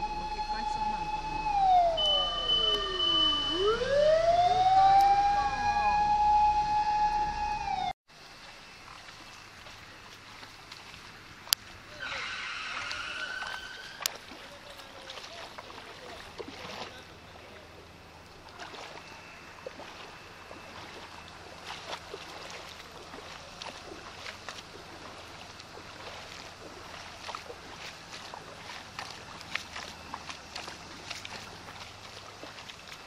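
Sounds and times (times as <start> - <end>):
water sloshing and splashing: 0.0 - 5.6, 7.7 - 33.0
brief high tone: 0.0 - 7.9
rain on flooded street: 7.7 - 33.0.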